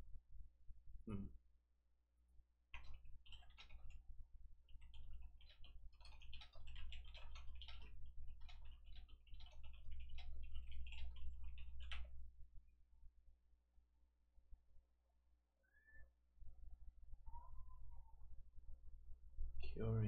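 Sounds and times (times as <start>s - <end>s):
typing on a computer keyboard: 2.8s - 4.1s, 4.7s - 12.2s.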